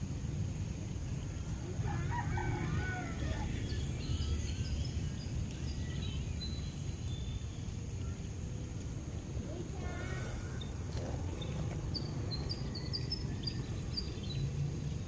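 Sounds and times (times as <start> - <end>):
steady low rumble: 0.0 - 15.0
rooster crowing: 1.8 - 3.6.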